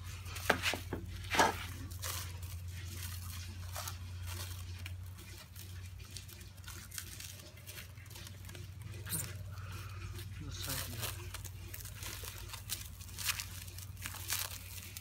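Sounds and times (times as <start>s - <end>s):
cling film crackling and tearing: 0.0s - 15.0s.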